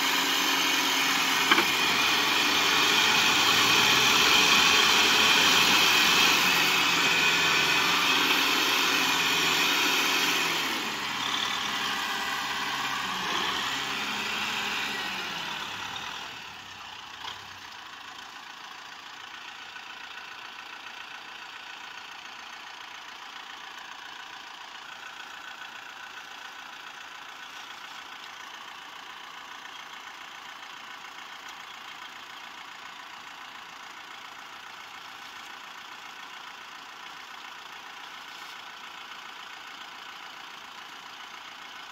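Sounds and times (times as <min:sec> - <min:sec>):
tractor engine revving: 0:00.0 - 0:17.8
tractor engine idling: 0:00.0 - 0:41.9.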